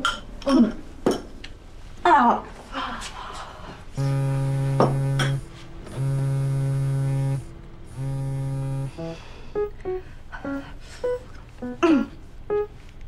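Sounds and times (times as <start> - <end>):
phone vibrating on table: 4.0 - 12.7.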